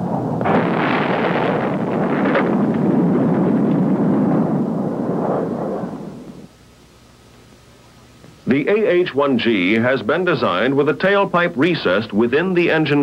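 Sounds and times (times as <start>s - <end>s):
missile explosion crack: 0.0s - 6.5s.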